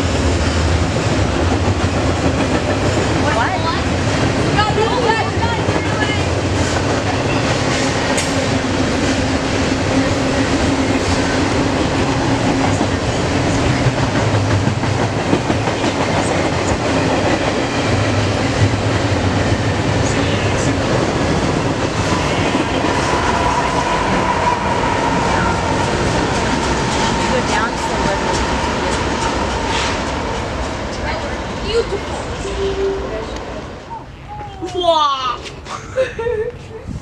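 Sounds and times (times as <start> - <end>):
steel wheels rattling on rails: 0.0 - 33.6
diesel locomotive whine: 0.0 - 34.6
freight train passing: 0.0 - 35.7.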